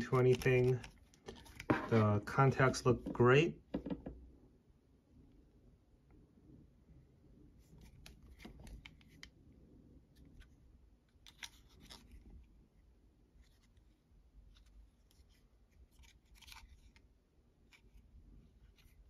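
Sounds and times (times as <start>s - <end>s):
plastic object clicks and rubs: 0.0s - 2.0s, 7.7s - 9.4s, 10.2s - 12.4s, 14.5s - 17.1s.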